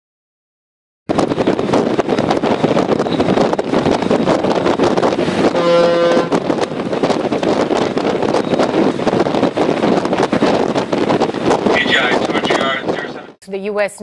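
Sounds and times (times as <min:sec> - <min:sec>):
wind buffeting microphone: 0:01.1 - 0:13.9
ship's horn blast: 0:05.3 - 0:06.5.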